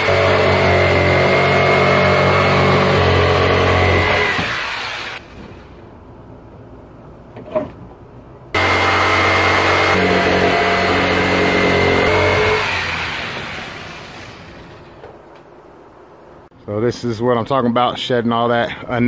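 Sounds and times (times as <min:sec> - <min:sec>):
power saw cutting hardboard: 0:00.0 - 0:05.3, 0:08.6 - 0:14.8.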